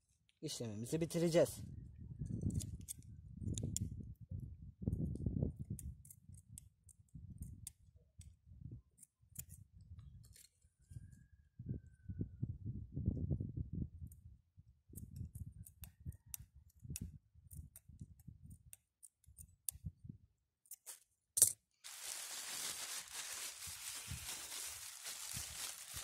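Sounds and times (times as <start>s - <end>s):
plastic bag rustling: 21.8s - 26.0s.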